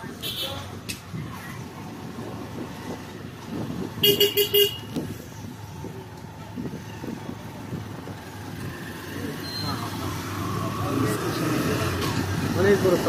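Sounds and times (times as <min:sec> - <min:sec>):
road and engine noise: 0:00.0 - 0:13.0
vehicle horn beeps: 0:04.0 - 0:04.9.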